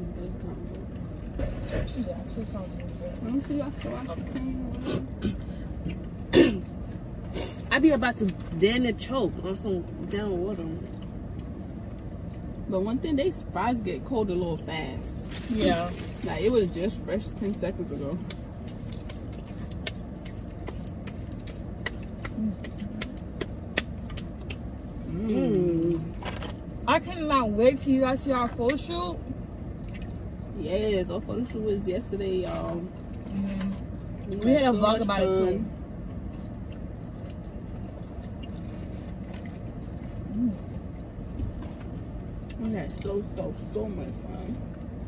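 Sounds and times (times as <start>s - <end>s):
car rumble: 0.0s - 45.0s
person humming: 25.1s - 26.0s.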